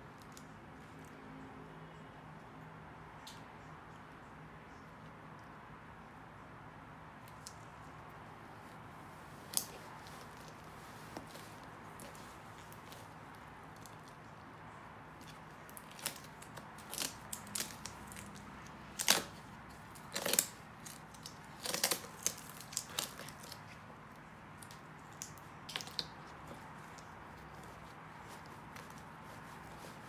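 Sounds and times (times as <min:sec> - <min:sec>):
rustles and crackles of rubber suit: 0:08.5 - 0:30.0.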